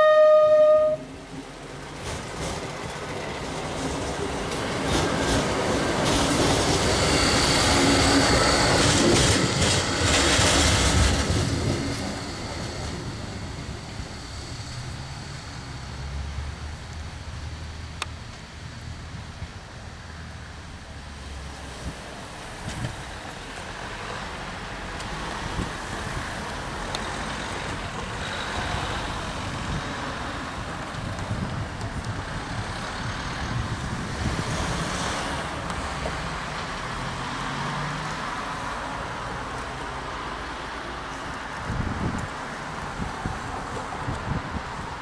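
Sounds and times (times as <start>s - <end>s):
diesel railcar engine approaching: 0.0s - 45.0s.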